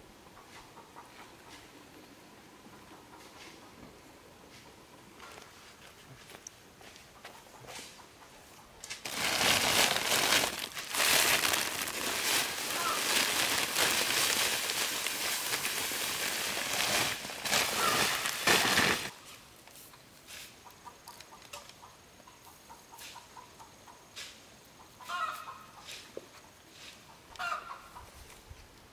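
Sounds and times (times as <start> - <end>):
loud rustling and crinkling: 8.9 - 19.2.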